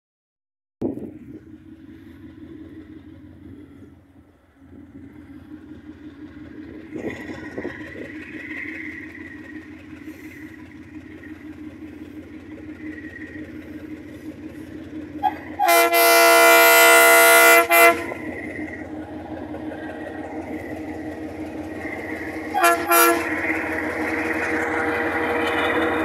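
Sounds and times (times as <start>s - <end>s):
diesel locomotive engine running: 0.8s - 26.0s
train horn blast: 15.2s - 18.3s, 22.5s - 23.5s.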